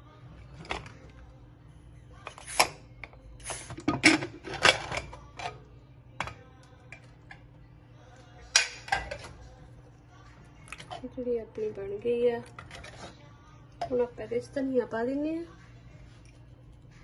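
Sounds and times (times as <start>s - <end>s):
metal lid clicks and clanks: 8.6s - 9.3s.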